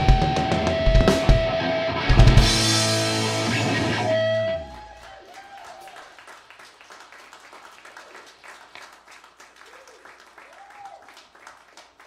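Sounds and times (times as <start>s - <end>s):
rock band chord: 0.0s - 4.8s
light applause: 4.1s - 12.0s.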